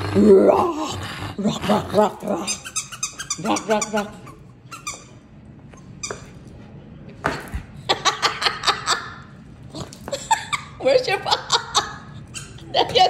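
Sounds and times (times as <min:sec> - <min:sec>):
dog growl-yips: 0:00.0 - 0:04.5.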